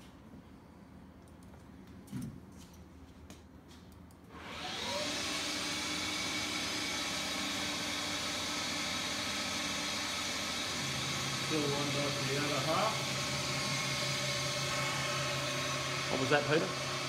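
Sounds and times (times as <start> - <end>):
lathe spindle spinning up: 4.4 - 17.0.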